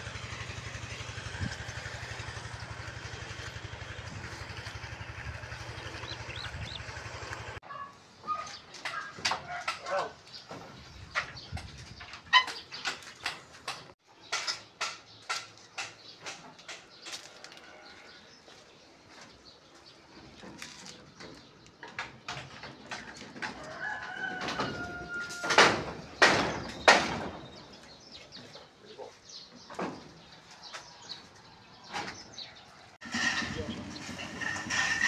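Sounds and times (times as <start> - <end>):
rooster crowing: 23.6 - 25.8
loud sharp knocks: 25.4 - 27.5.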